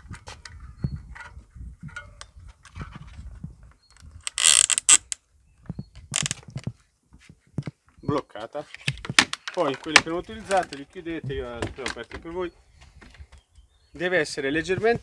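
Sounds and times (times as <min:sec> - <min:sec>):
bike rack clicks and rattles: 0:00.0 - 0:05.2, 0:05.9 - 0:06.7
strap scraping pulls: 0:04.2 - 0:05.2, 0:06.1 - 0:06.4.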